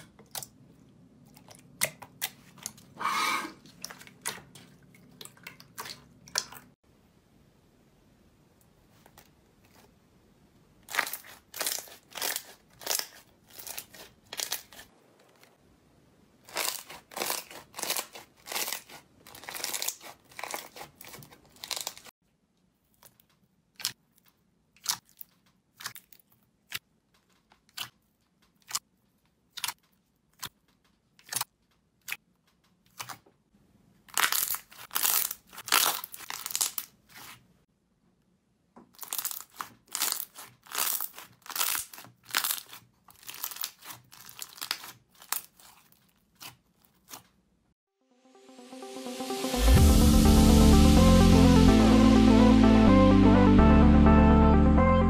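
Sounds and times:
slime crackling and popping: 10.8 - 15.6, 16.4 - 22.1, 34.1 - 37.4, 39.0 - 47.3.

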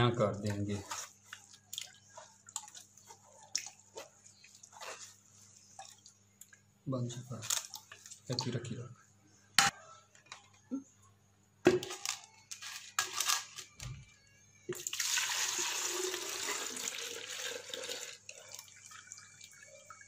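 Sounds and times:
liquid splashing into a jug: 14.7 - 20.0.

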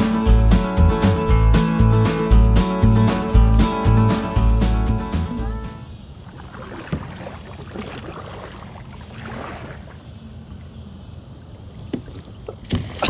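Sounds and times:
water lapping at hull: 6.0 - 13.0
kayak paddle splashing: 6.2 - 10.7, 11.8 - 13.0.

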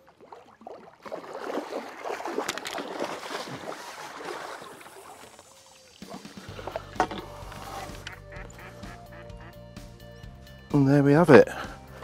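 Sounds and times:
fish thrashing and splashing: 0.0 - 8.6.

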